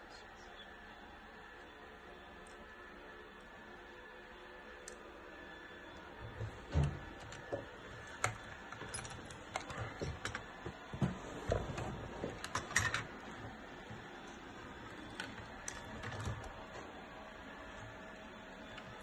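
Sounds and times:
plastic parts clicking and tapping: 0:06.8 - 0:11.1, 0:12.2 - 0:13.1.

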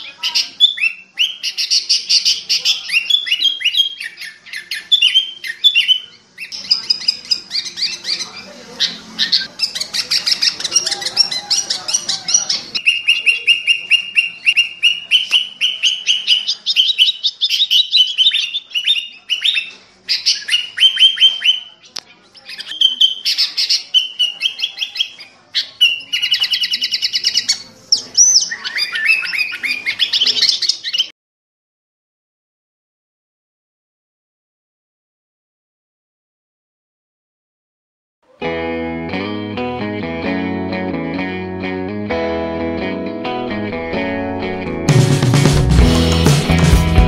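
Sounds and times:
bird chattering calls: 0:00.0 - 0:31.1.

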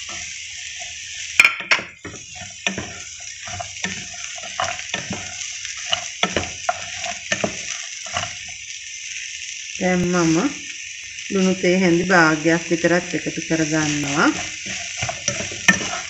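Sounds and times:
spatula scraping and knocking pan: 0:00.0 - 0:08.6, 0:13.6 - 0:16.0
green beans sizzling in oil: 0:00.0 - 0:16.0.

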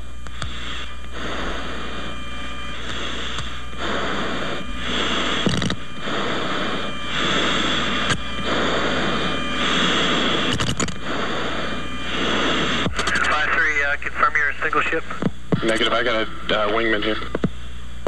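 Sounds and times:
radio static hiss: 0:00.0 - 0:18.0
sharp clicks: 0:10.5 - 0:11.0, 0:12.8 - 0:13.3.

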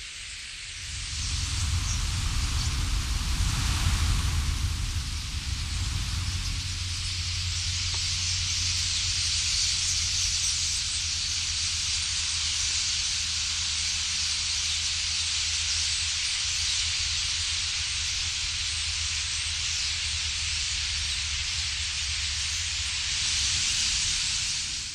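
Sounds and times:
hissing rush of starling flock: 0:00.0 - 0:24.9
low rumble: 0:00.7 - 0:12.5.

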